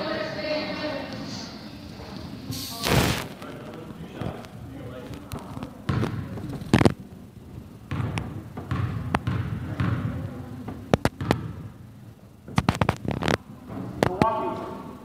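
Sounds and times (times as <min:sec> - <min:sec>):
murmur of gym noise: 0:00.0 - 0:15.0
basketball bouncing on gym floor: 0:05.8 - 0:06.9, 0:07.8 - 0:11.7.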